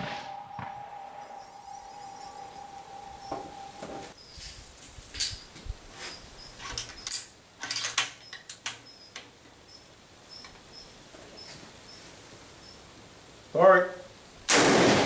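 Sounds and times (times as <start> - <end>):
small high chirps: 0.0 - 4.4.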